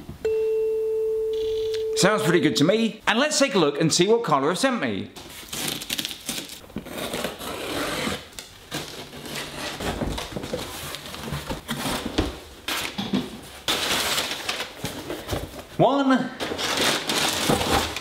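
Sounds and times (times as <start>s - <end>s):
packing paper rustling: 5.2s - 18.0s
box cutter slicing tape: 5.5s - 9.8s.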